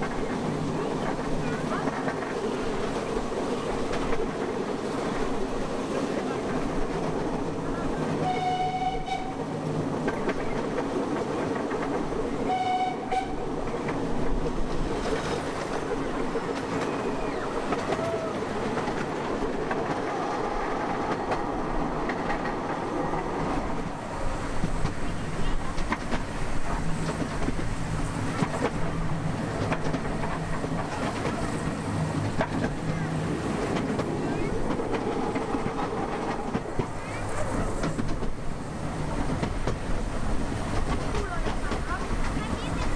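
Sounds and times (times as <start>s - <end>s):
train wheels clattering on track: 0.0s - 42.9s
locomotive toot: 8.2s - 9.5s, 12.4s - 13.5s.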